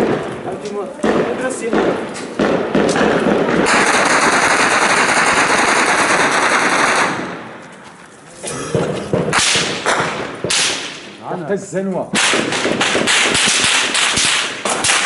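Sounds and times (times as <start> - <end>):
automatic gunfire: 1.0 - 7.4, 9.1 - 11.1, 12.2 - 15.0.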